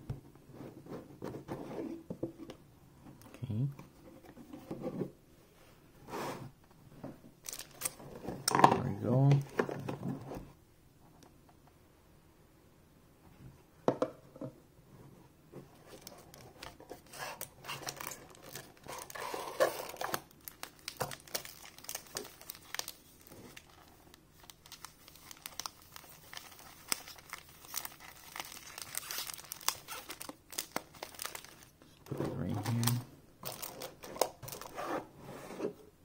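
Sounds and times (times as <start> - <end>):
foil packs crinkling: 7.4 - 8.0, 16.0 - 31.8, 32.4 - 34.7.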